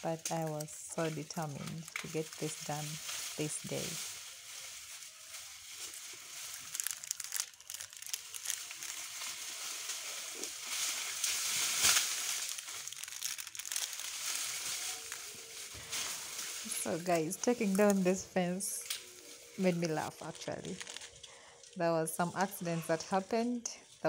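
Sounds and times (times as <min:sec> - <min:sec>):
dry leaves rustling and crunching: 0:00.0 - 0:24.0
sharp wood cracks: 0:06.5 - 0:16.5.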